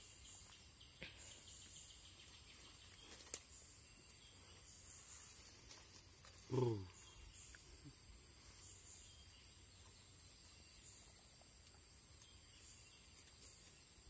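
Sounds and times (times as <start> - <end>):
insects trilling: 0.0 - 14.0
short human voice: 6.5 - 7.0.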